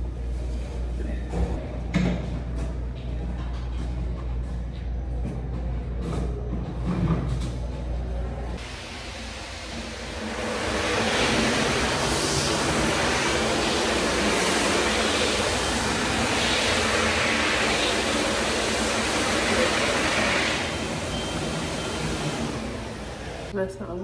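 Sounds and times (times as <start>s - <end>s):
restroom fixture rushing: 8.6s - 23.5s.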